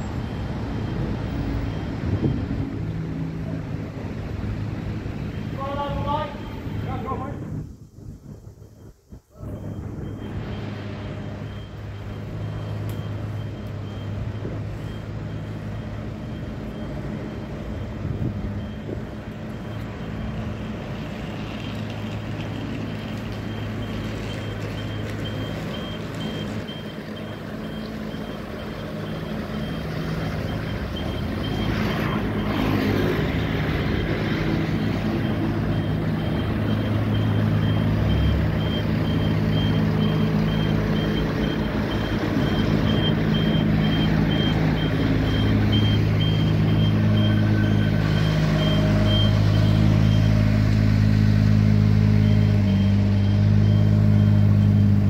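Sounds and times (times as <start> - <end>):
low engine hum: 0.0 - 55.0
warning alarm beeping: 8.8 - 21.7, 23.4 - 50.6.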